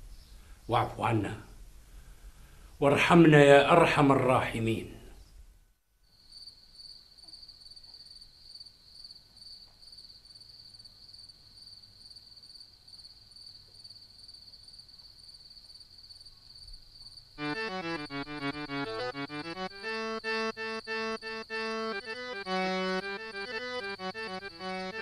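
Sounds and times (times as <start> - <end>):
crickets chirping: 6.0 - 17.5
music: 17.4 - 25.0.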